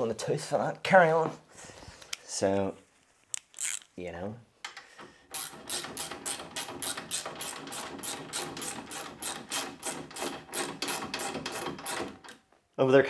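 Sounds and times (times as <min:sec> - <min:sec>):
hand ratchet clicking: 0:03.3 - 0:03.9, 0:04.7 - 0:12.4.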